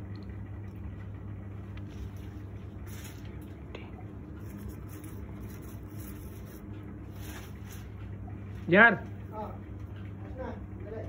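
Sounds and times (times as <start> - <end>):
low electrical hum: 0.0 - 11.0
leaves and stems rustling: 1.6 - 8.7.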